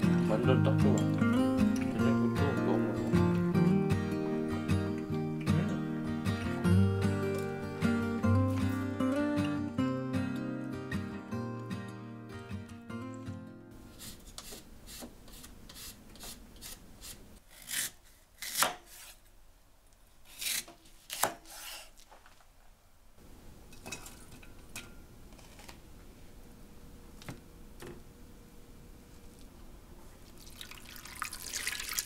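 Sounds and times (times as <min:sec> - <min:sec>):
knife slicing radish on board: 0:14.0 - 0:19.2, 0:20.3 - 0:21.9.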